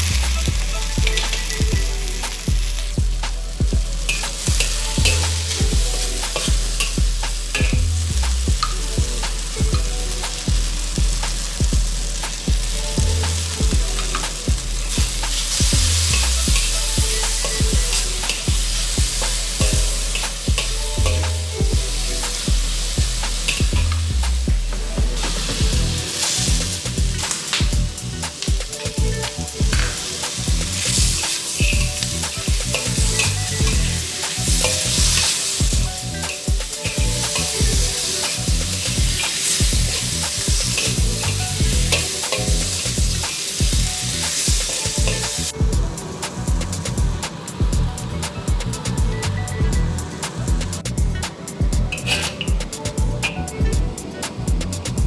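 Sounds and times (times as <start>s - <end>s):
beef sizzling in a wok: 0.0s - 48.8s
spatula scraping a wok: 13.9s - 45.5s, 50.7s - 52.6s.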